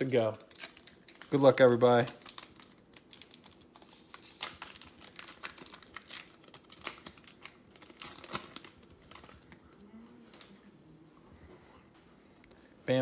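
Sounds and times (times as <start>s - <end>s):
card pack wrapper crinkling and tearing: 0.0s - 9.6s.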